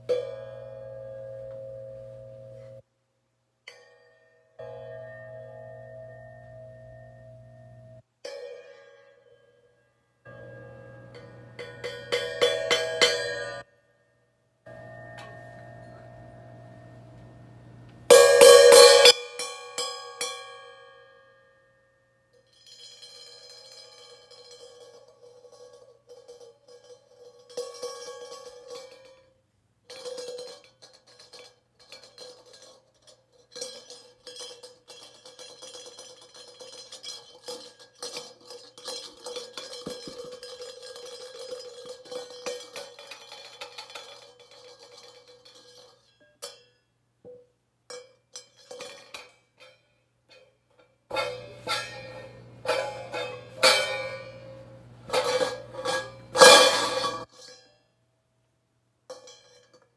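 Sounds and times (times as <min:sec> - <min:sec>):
cymbals struck with drumstick: 0:18.1 - 0:20.3.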